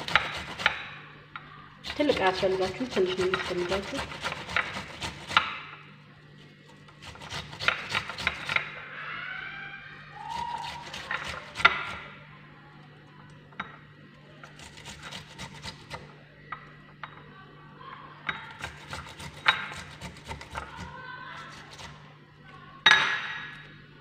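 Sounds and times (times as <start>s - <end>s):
onion grated on a metal grater: 0.0s - 1.0s, 1.8s - 5.8s, 6.4s - 8.8s, 10.2s - 12.2s, 14.4s - 16.1s, 18.4s - 22.0s.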